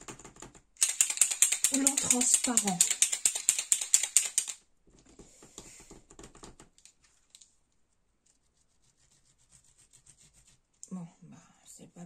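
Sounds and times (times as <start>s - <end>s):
paint marker ball rattling: 0.8s - 4.6s.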